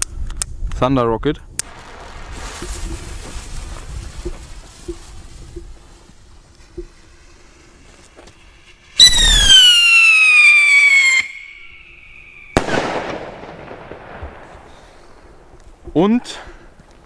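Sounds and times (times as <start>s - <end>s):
firework rocket whistling: 1.6s - 13.8s
firework bang: 1.7s - 5.6s, 8.9s - 15.4s.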